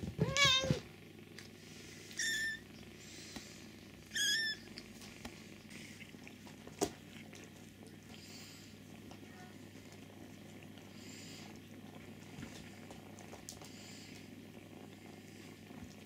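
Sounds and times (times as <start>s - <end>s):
low steady purr: 0.0s - 16.0s
kittens mewing: 0.1s - 0.8s, 2.1s - 2.7s, 4.1s - 4.8s.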